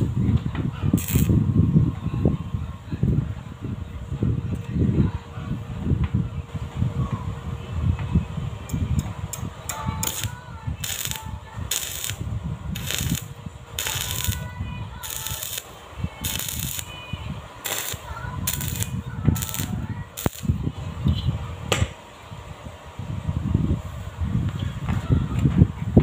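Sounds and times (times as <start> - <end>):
arc welding crackling: 0.9 - 1.4, 10.0 - 20.6.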